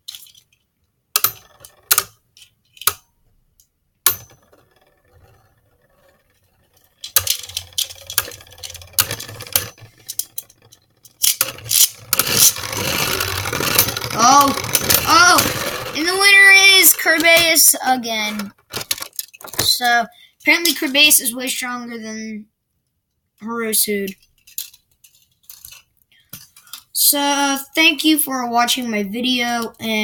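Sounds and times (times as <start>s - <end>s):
spinning tops rattling clicks: 1.2s - 3.1s, 4.0s - 21.2s, 23.9s - 27.0s
spinning tops clacking: 4.0s - 19.4s.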